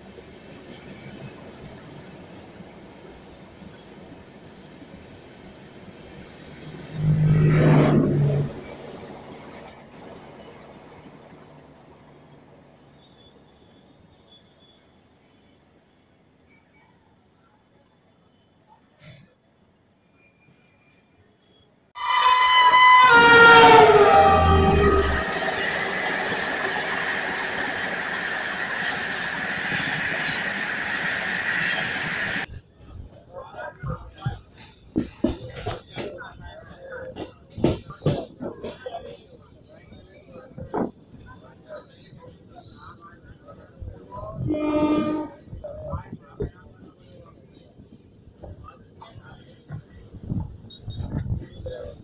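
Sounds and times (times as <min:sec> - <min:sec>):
train coaches rumbling past: 0:00.0 - 0:14.1, 0:22.0 - 0:52.0
train roaring drone: 0:05.2 - 0:12.7, 0:22.0 - 0:32.6
high-pitched squeal: 0:22.0 - 0:32.5.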